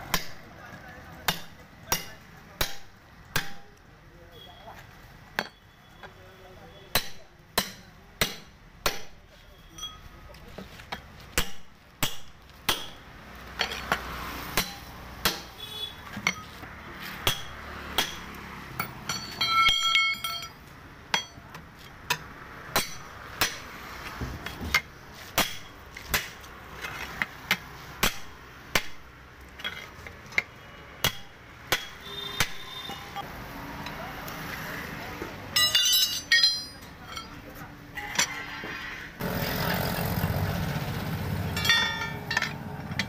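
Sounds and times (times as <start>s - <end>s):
hammer striking steel: 1.2s - 3.8s, 6.9s - 9.2s, 11.4s - 14.0s, 14.6s - 15.6s, 17.1s - 21.5s, 22.1s - 23.7s, 24.4s - 26.4s, 27.5s - 29.1s, 31.0s - 33.3s, 35.5s - 37.4s, 41.5s - 43.0s
ringing metal clanks: 9.5s - 10.2s, 16.2s - 16.6s, 18.8s - 21.4s, 35.5s - 37.4s, 41.5s - 43.0s.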